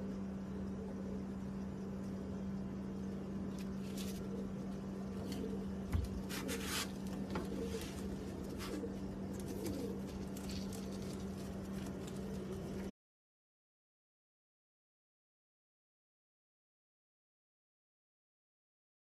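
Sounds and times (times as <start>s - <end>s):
steady low hum: 0.0s - 12.9s
scratchy rustles: 3.5s - 4.5s, 5.2s - 12.9s
pigeon cooing: 3.8s - 12.9s.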